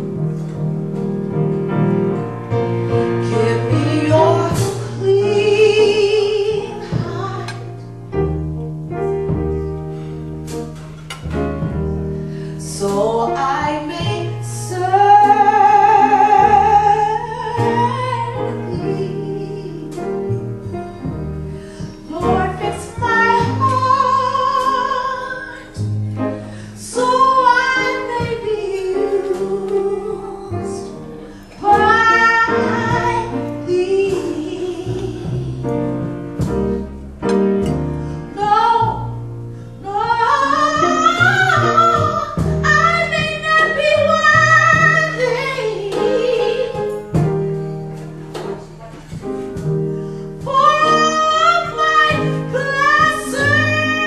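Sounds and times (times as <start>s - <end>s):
jazz piano trio: 0.0s - 54.0s
woman singing ballad: 3.2s - 7.9s, 12.5s - 20.4s, 21.6s - 25.9s, 26.6s - 36.2s, 38.2s - 39.2s, 39.8s - 47.3s, 50.4s - 54.0s.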